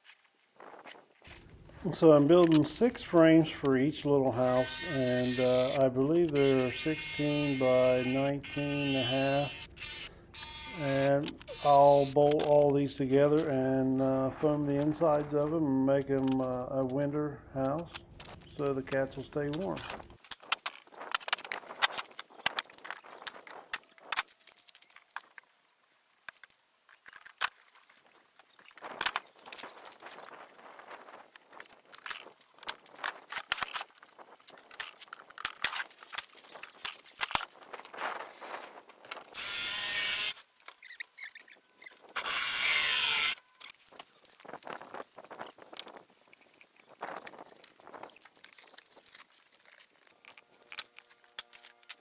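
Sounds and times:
small scrapes and ticks: 0:00.0 - 0:03.0, 0:04.4 - 0:17.0, 0:17.6 - 0:52.0
power saw cutting foam board: 0:04.3 - 0:12.2, 0:39.3 - 0:41.0, 0:42.1 - 0:43.4.

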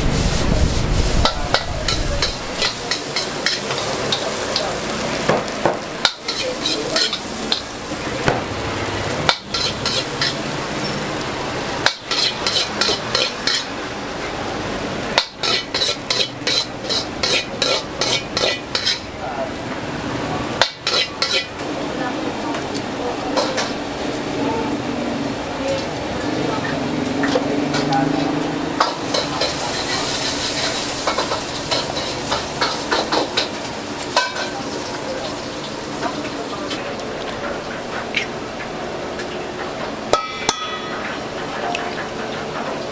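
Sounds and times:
metal utensil scraping a wok: 0:00.0 - 0:05.2, 0:05.9 - 0:07.8, 0:09.3 - 0:11.1, 0:11.8 - 0:13.8, 0:15.2 - 0:19.1, 0:20.6 - 0:21.6, 0:27.2 - 0:35.0
rice sizzling in a wok: 0:00.0 - 0:26.5, 0:28.7 - 0:36.8.

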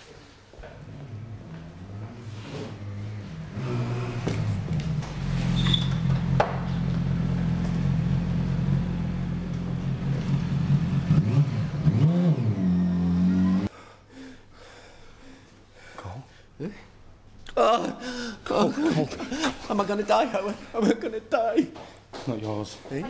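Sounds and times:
motorcycle engine revving: 0:00.6 - 0:13.7.

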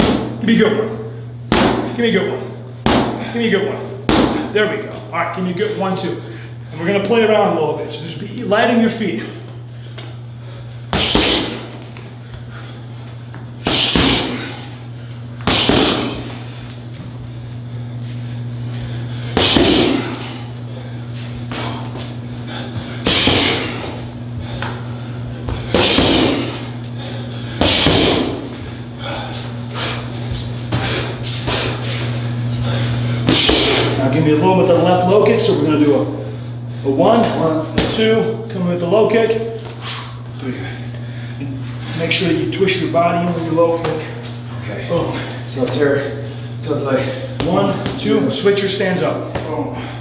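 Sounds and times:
punches hitting focus pads: 0:00.0 - 0:00.4, 0:01.5 - 0:02.0, 0:02.8 - 0:03.3, 0:04.0 - 0:04.5, 0:10.9 - 0:11.8, 0:13.6 - 0:14.6, 0:15.4 - 0:16.4, 0:19.3 - 0:20.2, 0:23.0 - 0:24.0, 0:25.5 - 0:26.7, 0:27.6 - 0:28.5, 0:33.2 - 0:34.0, 0:37.2 - 0:38.1, 0:47.4 - 0:48.3
steady low hum: 0:00.0 - 0:50.0.

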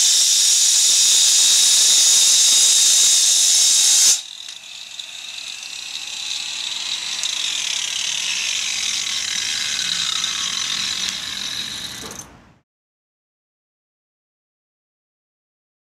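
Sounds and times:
angle grinder high whine: 0:00.0 - 0:12.4.

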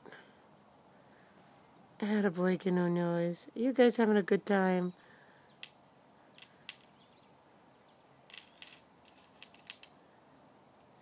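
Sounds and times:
faint bird chirp: 0:04.8 - 0:08.9
dry leaves rustling: 0:08.3 - 0:10.0.

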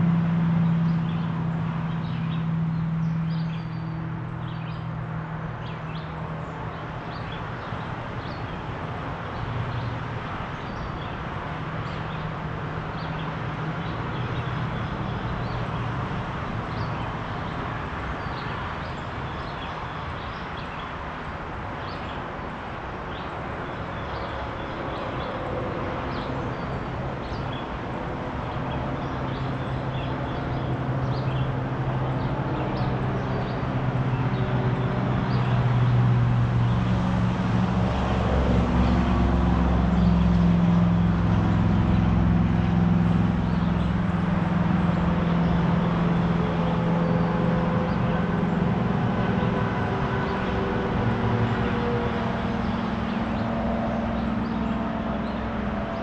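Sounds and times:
highway traffic rushing: 0:00.0 - 0:56.0
low engine hum: 0:00.0 - 0:56.0.

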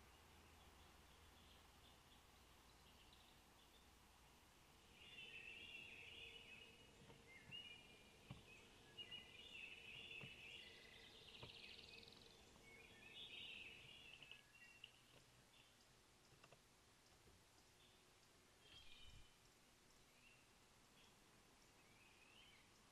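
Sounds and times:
songbirds chirping and trilling: 0:00.0 - 0:22.9
soft knocks: 0:08.2 - 0:08.6.

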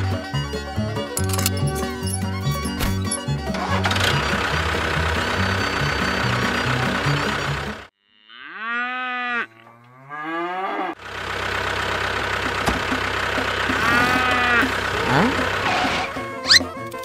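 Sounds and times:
music: 0:00.0 - 0:07.8, 0:15.3 - 0:17.0
engine running: 0:00.0 - 0:07.9, 0:11.0 - 0:17.0
cow mooing: 0:08.0 - 0:11.0, 0:13.8 - 0:16.6.

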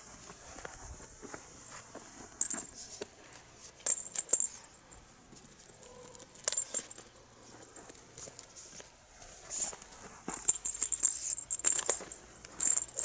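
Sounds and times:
cat toy jingling on asphalt: 0:03.8 - 0:05.0, 0:05.7 - 0:07.1, 0:10.3 - 0:13.0.

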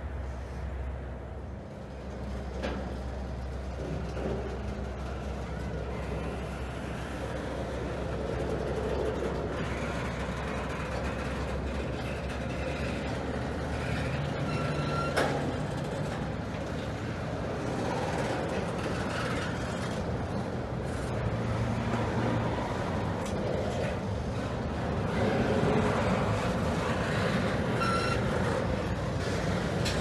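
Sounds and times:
freight train wheels rumbling: 0:00.0 - 0:30.0
train wheel squeal: 0:09.5 - 0:15.8, 0:26.8 - 0:28.6.

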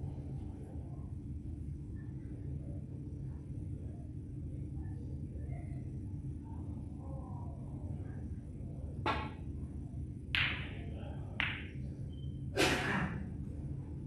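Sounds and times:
snooker balls clicking: 0:11.4 - 0:11.8.

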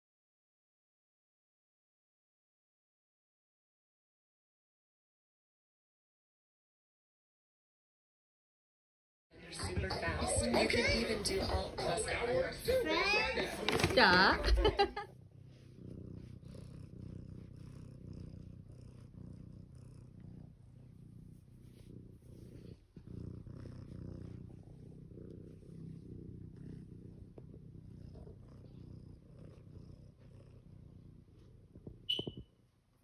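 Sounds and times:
cat purring: 0:09.4 - 0:33.0
high-pitched squeak: 0:32.1 - 0:32.4.

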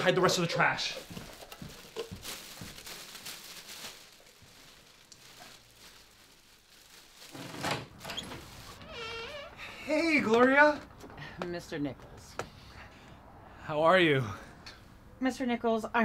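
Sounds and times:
plastic bag rustling: 0:00.0 - 0:09.3.

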